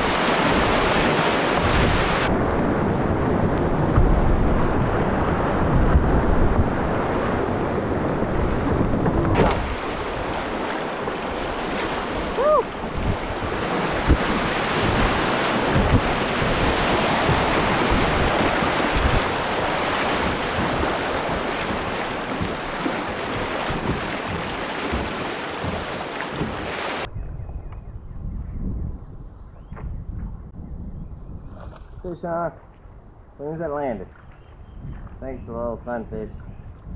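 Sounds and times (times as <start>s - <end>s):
calm water: 0.0s - 27.6s, 31.3s - 36.9s
wind buffeting microphone: 0.0s - 36.9s
whitewater rapids rushing: 9.4s - 27.1s
low knocks: 12.8s - 19.3s, 20.0s - 26.7s.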